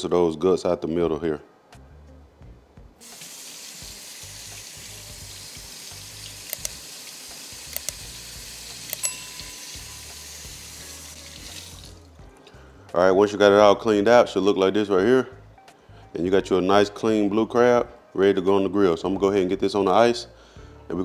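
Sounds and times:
faucet water splashing in sink: 0:03.0 - 0:12.0
sharp clicks: 0:06.4 - 0:06.8, 0:07.7 - 0:08.0.

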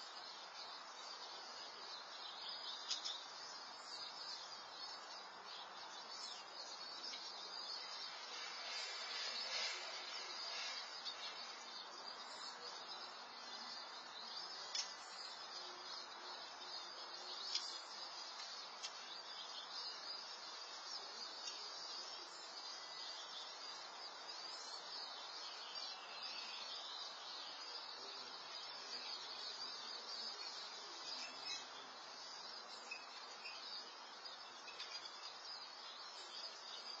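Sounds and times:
outdoor background hiss: 0:00.0 - 0:37.0
soft ticks: 0:17.4 - 0:19.0.

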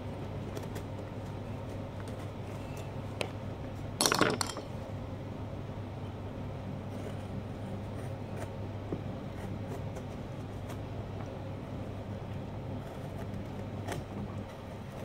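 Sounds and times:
metal tools clinking: 0:04.0 - 0:04.7.

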